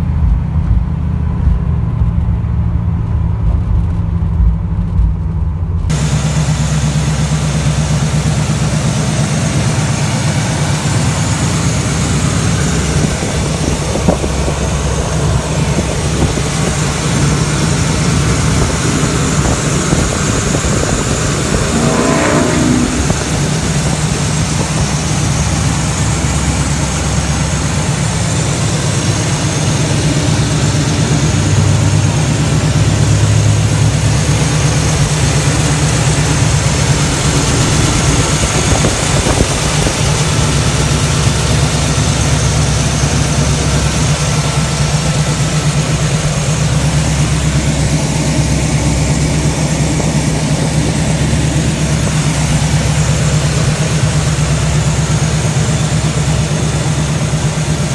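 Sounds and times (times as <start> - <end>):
car engine idling: 0.0 - 57.9.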